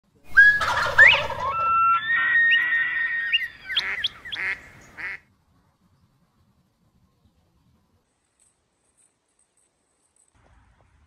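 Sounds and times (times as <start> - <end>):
animal whistling call: 0.3 - 4.2.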